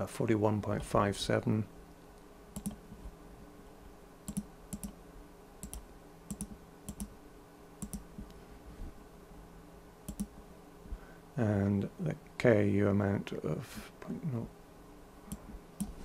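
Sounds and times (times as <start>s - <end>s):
faint steady hum: 0.0s - 16.0s
computer mouse clicking: 2.6s - 2.8s, 4.3s - 5.0s, 5.6s - 7.1s, 7.8s - 8.4s, 10.1s - 10.3s, 15.3s - 16.0s.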